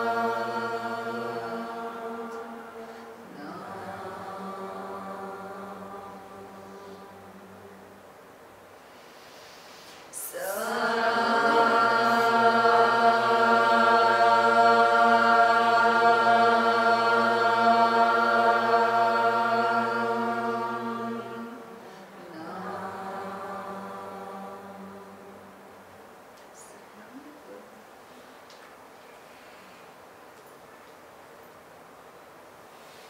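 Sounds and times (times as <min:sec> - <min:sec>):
group chanting held note: 0:00.0 - 0:08.0, 0:10.1 - 0:25.8.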